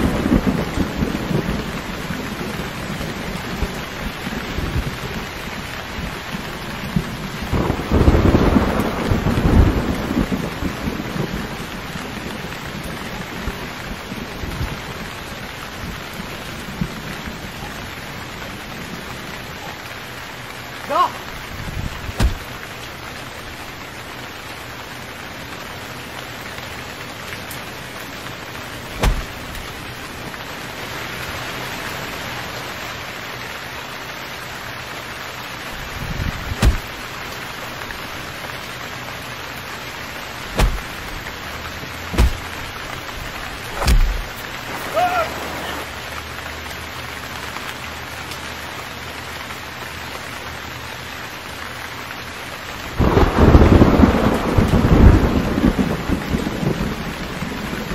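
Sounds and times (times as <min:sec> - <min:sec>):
heavy rain on leaves: 0:00.0 - 0:57.9
heavy thumps: 0:22.1 - 0:22.6, 0:28.9 - 0:29.8, 0:36.5 - 0:37.0, 0:40.5 - 0:41.4, 0:42.1 - 0:44.9.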